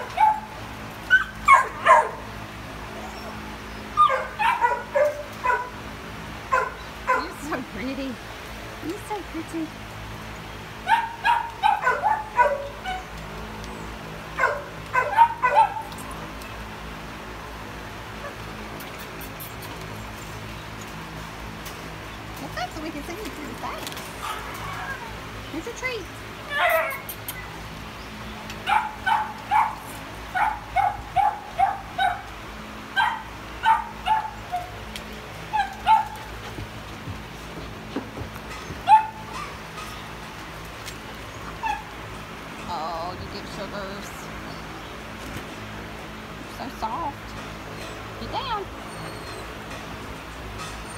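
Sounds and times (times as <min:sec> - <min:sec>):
dog yipping: 0:00.0 - 0:02.2, 0:04.0 - 0:05.7, 0:06.5 - 0:07.4, 0:10.9 - 0:13.1, 0:14.4 - 0:16.0, 0:24.2 - 0:25.2, 0:26.5 - 0:27.5, 0:28.7 - 0:32.3, 0:33.0 - 0:34.7, 0:35.5 - 0:36.2, 0:38.8 - 0:40.0, 0:41.6 - 0:41.9, 0:48.8 - 0:49.5.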